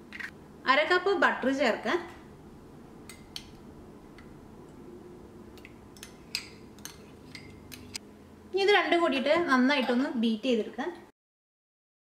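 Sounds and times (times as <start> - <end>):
glassware clicks and taps: 5.6 - 8.0.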